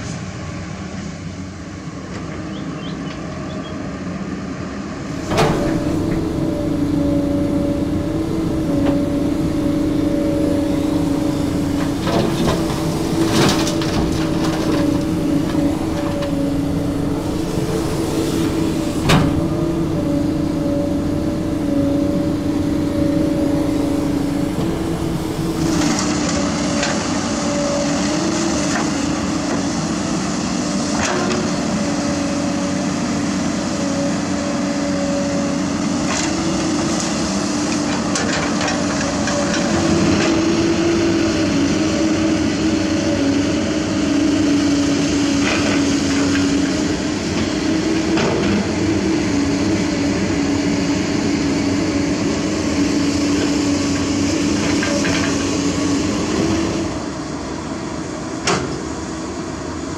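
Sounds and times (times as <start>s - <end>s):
heavy diesel engines running: 0.0s - 59.9s.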